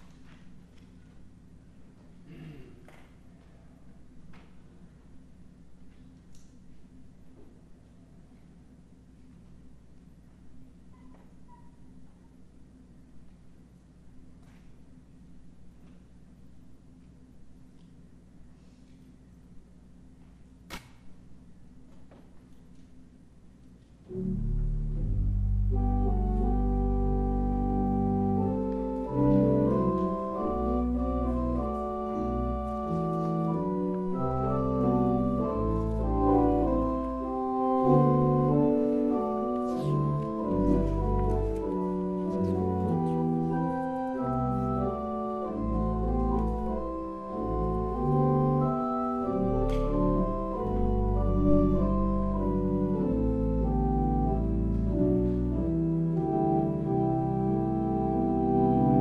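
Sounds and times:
organ playing held chords: 24.0s - 59.0s.

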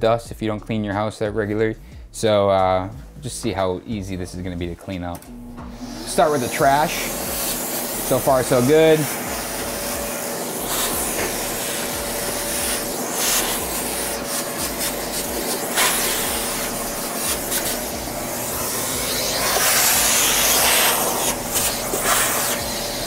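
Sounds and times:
shop vacuum running: 2.3s - 23.0s
debris rattling up hose: 6.7s - 23.0s.

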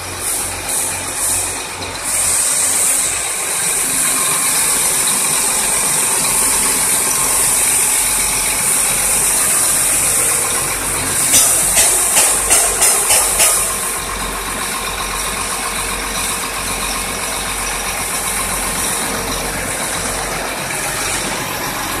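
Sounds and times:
truck engine idling: 0.0s - 22.0s
sharp clicks: 11.3s - 13.9s.

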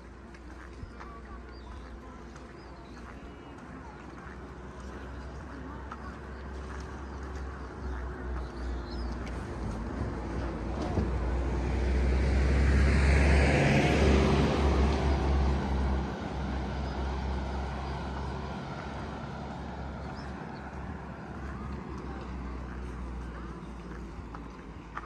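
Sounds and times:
car driving past: 8.6s - 25.0s.

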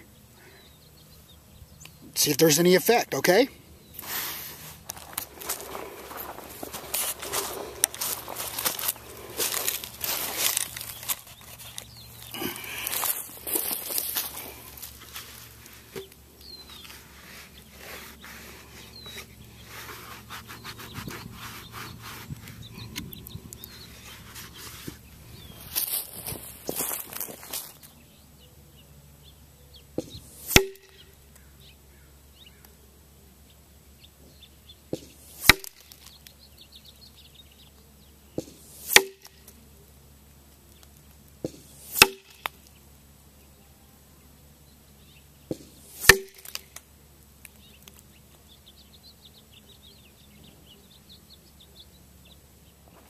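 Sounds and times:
birds chirping: 0.0s - 38.6s, 42.4s - 53.0s
distant paintball marker pop: 30.0s - 31.0s, 34.9s - 36.0s, 38.4s - 39.5s, 41.4s - 42.6s, 45.5s - 46.8s
paintball humming into target: 30.0s - 31.1s, 38.3s - 39.7s, 41.4s - 42.6s, 45.5s - 46.9s.

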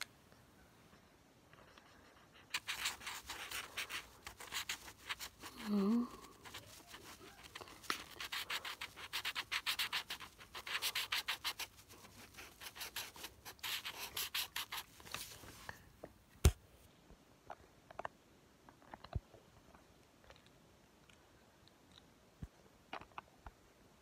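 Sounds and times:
marker scribbling on paper: 2.1s - 15.6s.

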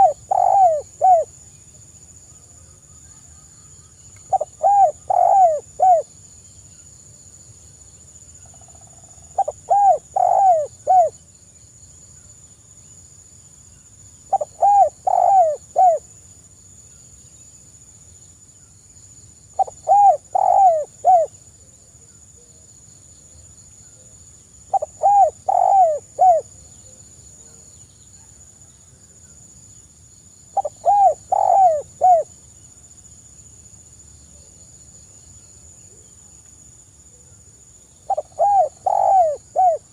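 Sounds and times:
dove cooing softly: 0.0s - 1.3s, 2.6s - 6.2s, 8.4s - 11.2s, 14.3s - 16.0s, 19.6s - 22.6s, 24.7s - 28.9s, 30.6s - 32.4s, 38.0s - 39.9s.

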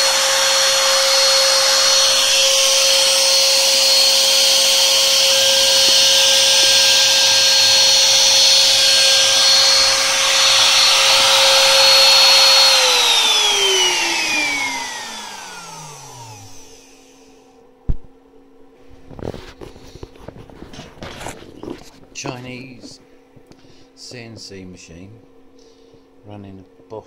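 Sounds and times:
router motor whining: 0.0s - 17.4s.

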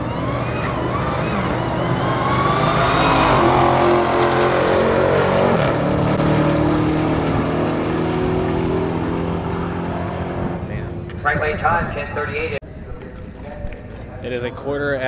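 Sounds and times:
drag racing car accelerating: 0.0s - 11.2s.

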